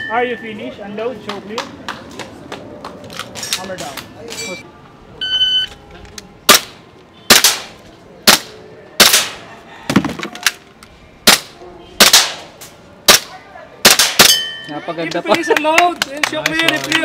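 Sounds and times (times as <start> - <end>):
handgun shots: 6.5 - 9.4, 11.3 - 12.5, 13.1 - 14.4.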